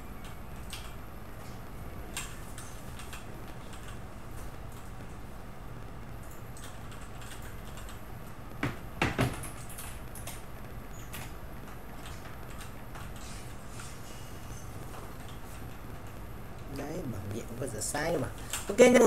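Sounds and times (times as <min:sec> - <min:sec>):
steady low hum: 0:00.0 - 0:19.0
loud knocks: 0:08.6 - 0:09.4.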